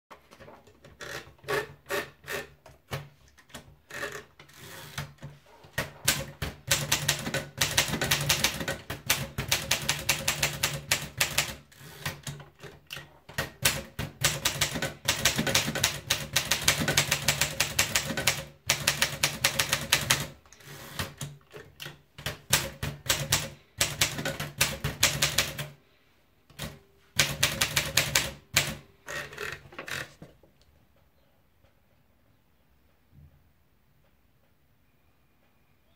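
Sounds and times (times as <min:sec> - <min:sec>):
typewriter paper feed clicks: 0:00.3 - 0:25.8, 0:26.5 - 0:30.2
typewriter keystroke clacks: 0:04.9 - 0:25.8, 0:26.5 - 0:28.9.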